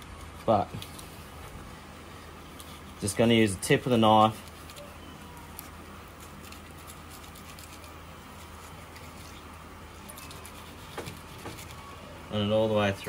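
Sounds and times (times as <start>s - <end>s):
steady low hum: 0.0s - 13.0s
knife scraping fish scales: 10.1s - 11.8s.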